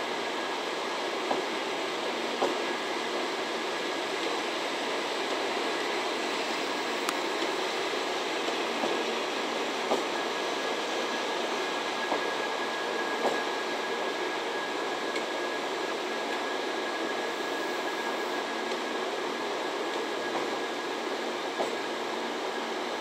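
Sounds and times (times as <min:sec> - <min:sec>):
train rolling slowly past: 0:00.0 - 0:23.0.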